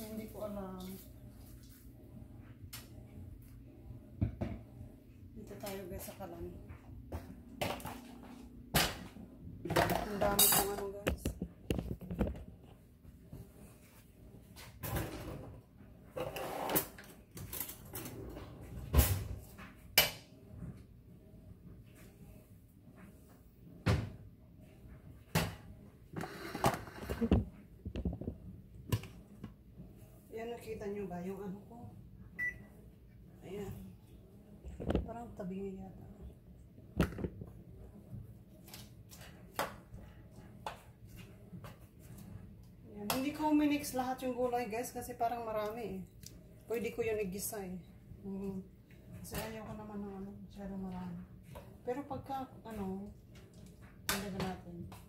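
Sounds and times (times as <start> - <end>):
kitchen knocks and thuds: 27.2 - 29.1, 37.0 - 37.5.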